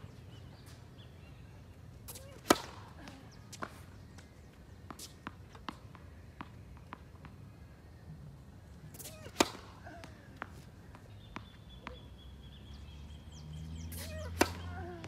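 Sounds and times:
tennis ball struck with racket: 2.1 - 3.8, 8.9 - 12.0, 13.9 - 15.0.

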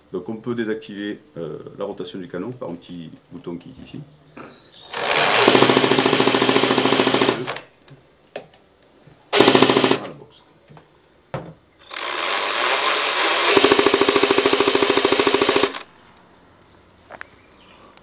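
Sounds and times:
motor whir: 4.9 - 6.6
airsoft gearbox full-auto bursts: 4.9 - 7.7, 9.4 - 10.1, 11.9 - 15.9.

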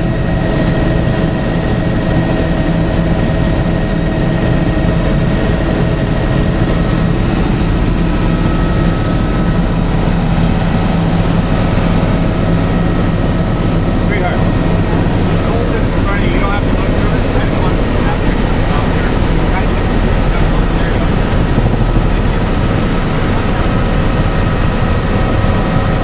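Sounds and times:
helicopter engine and rotor drone: 0.0 - 26.0
high whine: 0.0 - 26.0.

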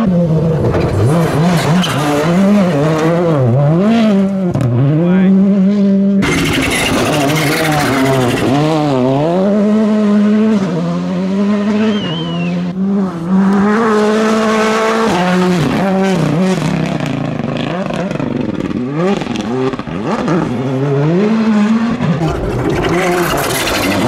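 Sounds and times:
rally car engine revving hard: 0.0 - 24.0.

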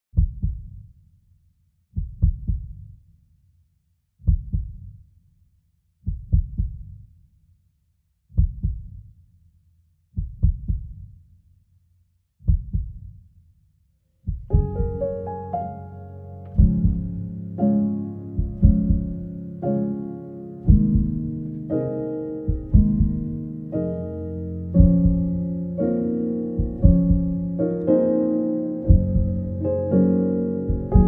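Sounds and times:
heartbeat thumps: 0.2 - 0.8, 2.0 - 2.8, 4.2 - 4.9, 6.0 - 6.9, 8.4 - 9.0, 10.2 - 11.0, 12.4 - 13.1, 14.2 - 15.1, 16.6 - 17.4, 18.4 - 19.4, 20.7 - 21.6, 22.5 - 23.5, 24.8 - 25.6, 26.6 - 27.6, 28.9 - 29.6, 30.7 - 31.0
piano: 14.4 - 31.0.

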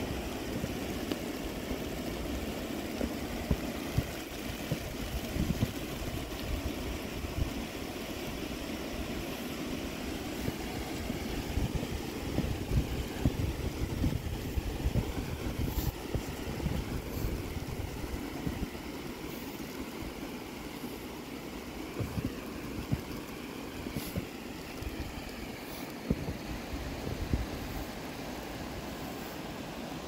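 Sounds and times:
outdoor rushing hiss: 0.0 - 30.0
wind buffeting microphone: 3.3 - 7.7, 10.4 - 18.8.

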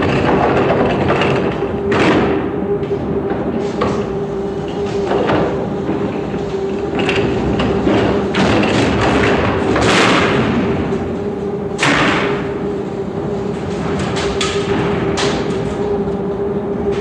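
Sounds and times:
thumps and knocks of loads: 0.0 - 11.0, 13.6 - 16.0
machinery hum: 0.0 - 17.0.

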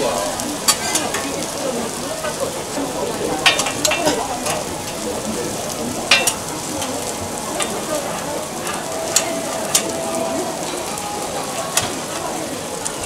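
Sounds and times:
batter sizzling on griddle: 0.0 - 13.0.

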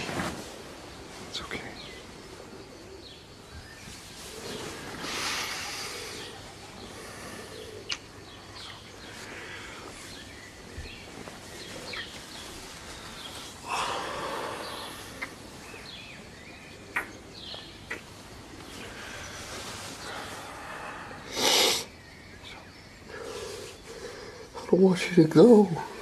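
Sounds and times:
bird chirps: 1.1 - 26.0
close breathing: 4.2 - 16.2, 18.6 - 24.7
lip clicks: 7.8 - 8.8
kissing sounds: 7.9 - 8.1.

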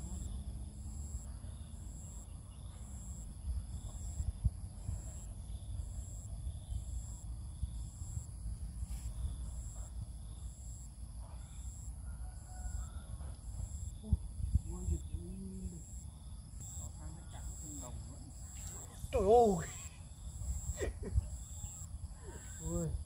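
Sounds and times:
high-pitched insect whine: 0.0 - 23.0
insect chirping: 0.0 - 23.0.

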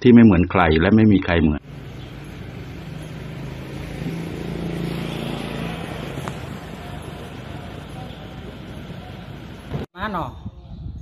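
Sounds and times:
outdoor background noise: 0.0 - 11.0
vehicle passing: 1.6 - 9.9.

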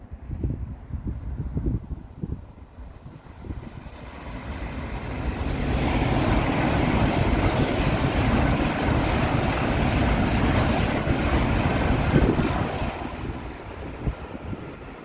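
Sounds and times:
high-speed train passing: 0.0 - 15.0.

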